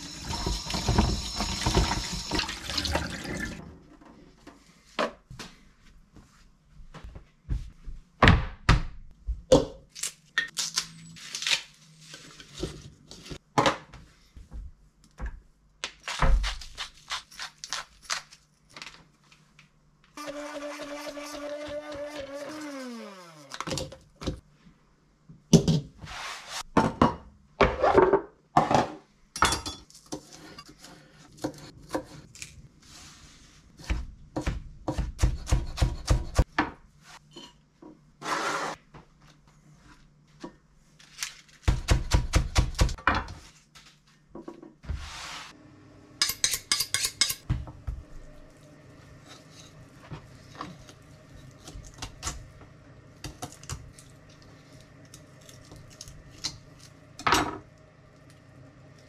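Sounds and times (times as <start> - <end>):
container and utensils clattering: 0.2 - 3.7.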